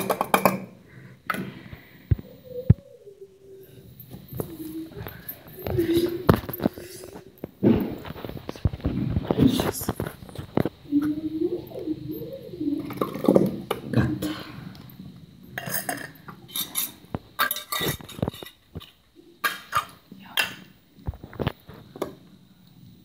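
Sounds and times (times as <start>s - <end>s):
metal bowls clinking: 0.0s - 0.8s, 15.5s - 20.7s.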